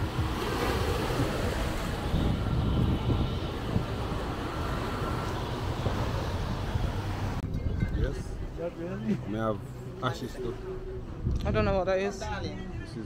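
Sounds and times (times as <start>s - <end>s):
small waves washing on sand: 0.0s - 7.4s
wind buffeting microphone: 0.0s - 8.6s.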